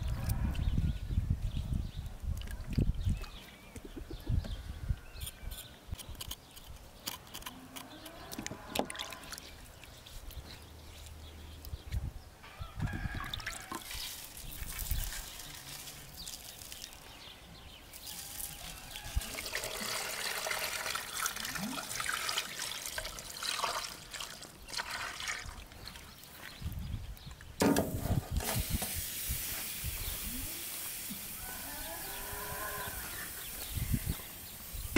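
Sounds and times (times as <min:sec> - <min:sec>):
water pouring into a pot: 0:19.2 - 0:25.6.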